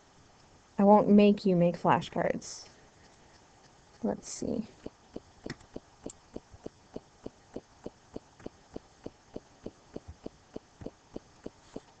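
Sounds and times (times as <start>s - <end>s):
steady ticking or knocking: 4.7s - 12.0s.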